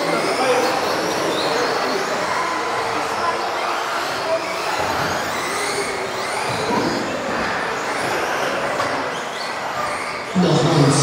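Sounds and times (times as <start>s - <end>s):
electric motors whining: 0.0s - 11.0s.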